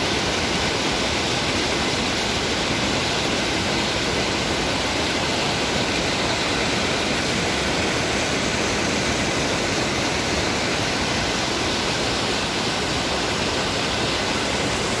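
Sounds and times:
river rushing through rapids: 0.0s - 15.0s.

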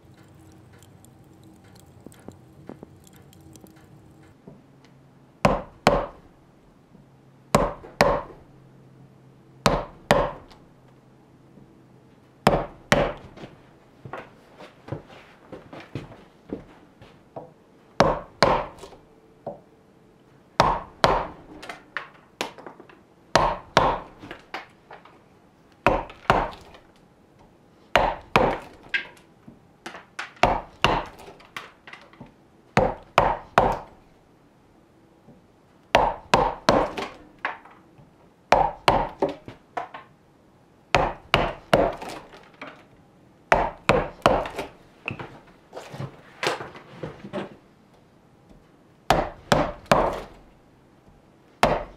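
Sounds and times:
wood chipping: 0.0s - 4.3s, 35.9s - 37.6s, 41.0s - 42.4s, 43.5s - 44.7s
mallet striking gouge into wood: 5.4s - 6.2s, 7.6s - 8.3s, 9.7s - 10.4s, 12.5s - 13.2s, 18.0s - 18.8s, 20.6s - 21.4s, 23.4s - 24.1s, 25.9s - 26.7s, 28.0s - 28.8s, 30.4s - 31.2s, 32.8s - 33.9s, 36.0s - 37.1s, 38.5s - 39.4s, 41.0s - 42.2s, 43.5s - 44.6s, 49.1s - 50.3s, 51.6s - 51.9s.

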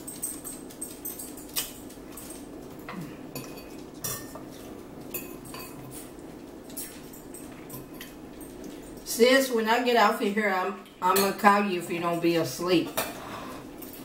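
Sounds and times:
low room hum: 0.0s - 14.0s.

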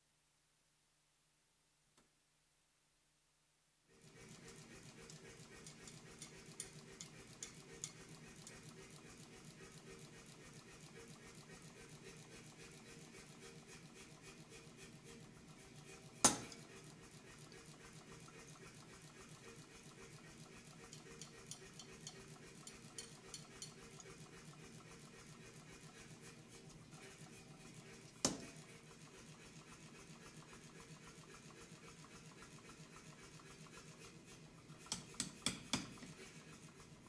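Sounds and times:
steel scribe scratching metal: 4.1s - 8.7s, 20.8s - 24.2s.

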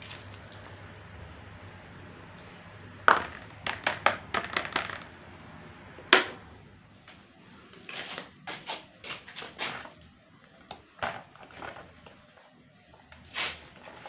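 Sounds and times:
low fan hum: 0.0s - 7.9s
plastic trays knocking on wood: 3.0s - 5.2s.

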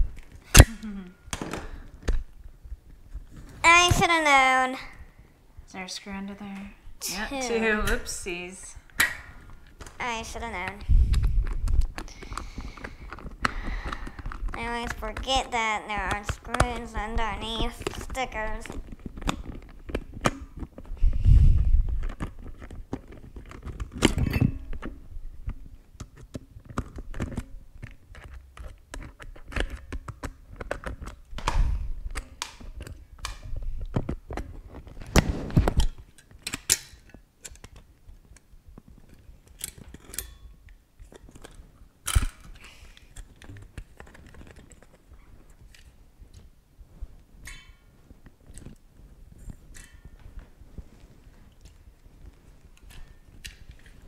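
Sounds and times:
small plastic clicks and scrapes: 9.6s - 46.5s.

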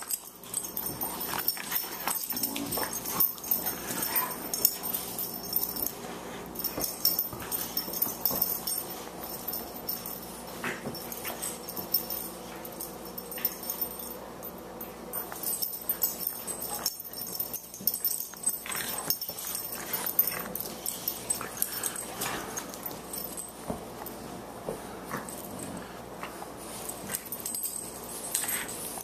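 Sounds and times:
dogs scuffling: 0.0s - 14.2s.

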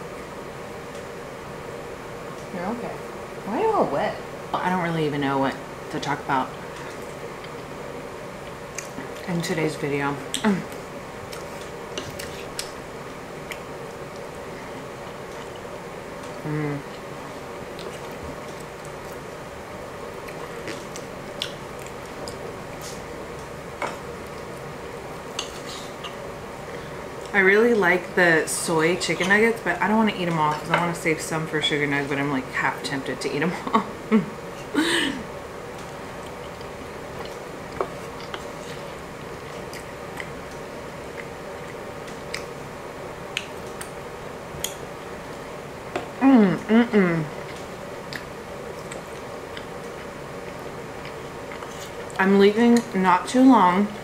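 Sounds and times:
steady low hum: 0.0s - 54.0s
chewing: 10.3s - 12.8s, 17.7s - 19.2s, 35.8s - 42.6s, 47.3s - 53.0s.

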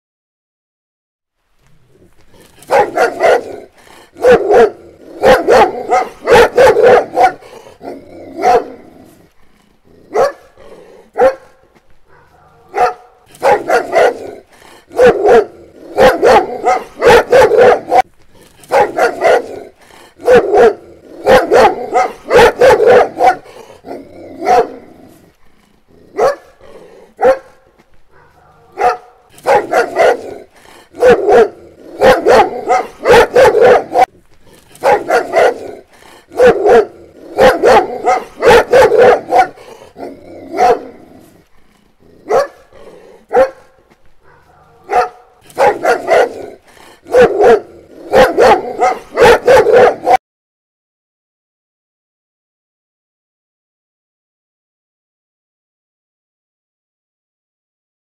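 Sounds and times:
dog barking: 2.6s - 9.0s, 10.1s - 25.0s, 26.1s - 34.1s, 34.8s - 41.2s, 42.2s - 50.2s.

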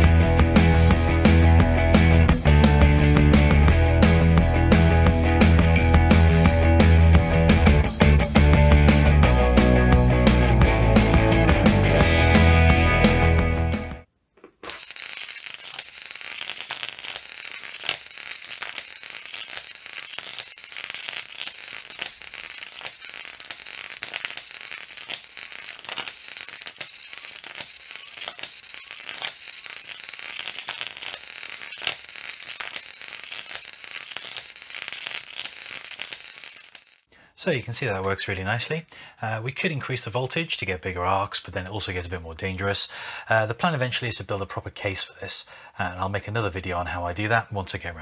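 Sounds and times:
electric arc crackling: 0.0s - 14.0s, 14.6s - 37.1s
sharp arc snaps: 14.6s - 37.1s.

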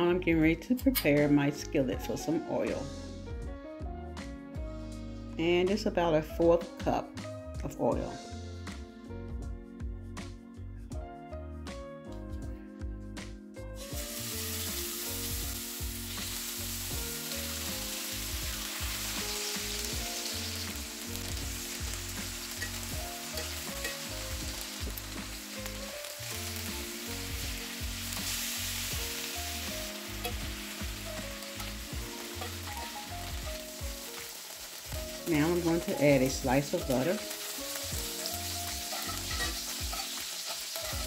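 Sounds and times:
background music with steady beat: 0.0s - 41.0s
chicken sizzling in hot oil: 13.8s - 41.0s.

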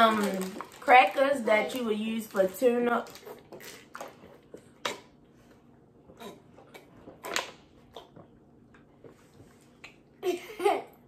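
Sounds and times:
plastic packaging crinkling: 0.0s - 4.4s.

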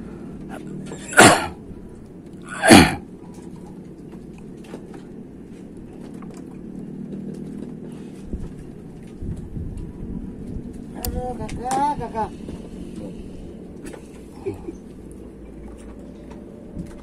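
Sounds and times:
steady low hum: 0.0s - 17.0s
person sneezing: 0.9s - 1.6s, 2.5s - 3.0s.

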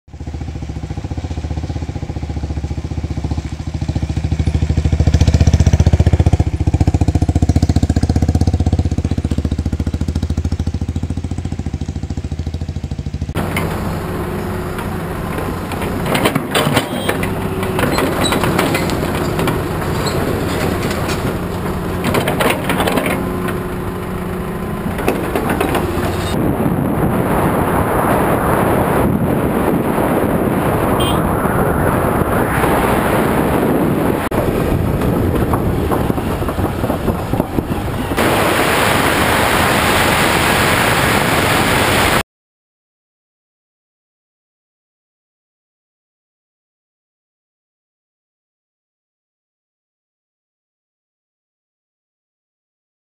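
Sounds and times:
motorcycle engine running: 0.1s - 27.5s, 28.6s - 38.8s
excavator working: 0.4s - 42.2s
gravel crunching and clattering: 13.4s - 26.4s, 32.6s - 38.4s.

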